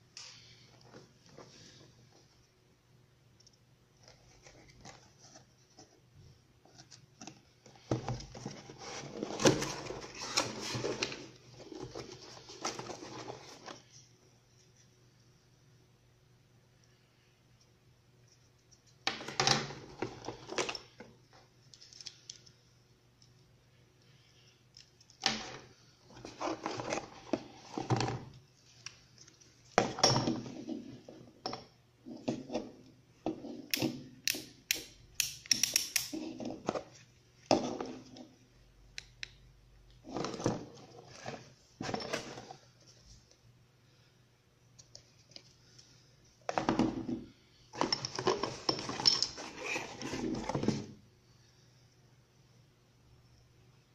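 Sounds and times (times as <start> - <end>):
box and cables rustling: 6.7 - 14.0, 24.8 - 31.1, 47.7 - 51.0.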